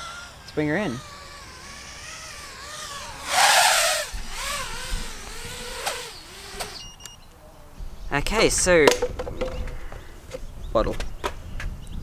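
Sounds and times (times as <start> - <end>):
quadcopter motors whining: 0.0 - 7.2
loud rushing burst: 1.0 - 6.8.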